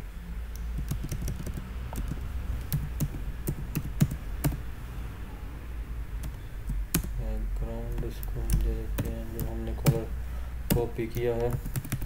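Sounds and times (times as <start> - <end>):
steady low hum: 0.0 - 12.0
keyboard typing: 0.5 - 4.7, 6.2 - 10.1, 10.7 - 12.0.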